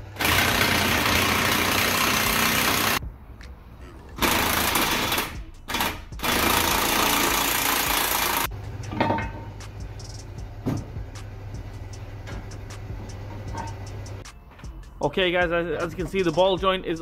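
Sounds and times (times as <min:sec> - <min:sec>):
pneumatic impact wrench: 0:00.0 - 0:03.0, 0:04.2 - 0:08.5.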